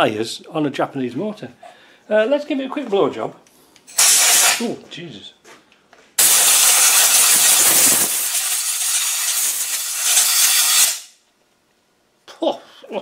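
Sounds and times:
compressed air hissing: 0:03.9 - 0:04.7, 0:06.2 - 0:11.1.

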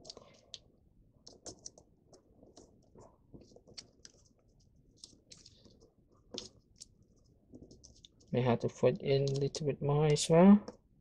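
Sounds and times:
paper crinkling being folded: 0:01.2 - 0:09.6.

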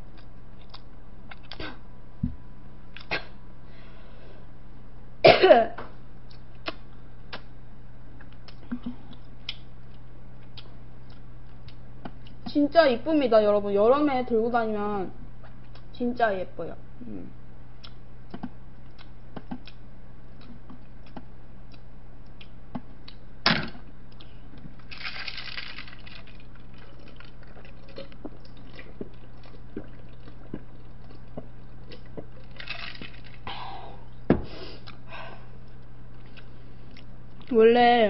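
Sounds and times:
low electrical hum: 0:00.0 - 0:38.0
sipping and swallowing a drink: 0:24.9 - 0:33.4.

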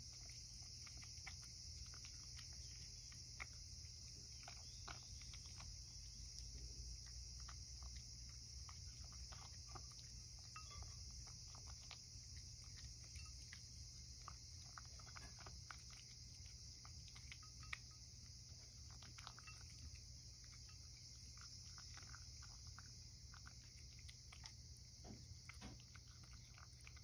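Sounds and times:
cat chewing crunchy food: 0:00.0 - 0:27.0
cat lapping: 0:00.0 - 0:27.0.

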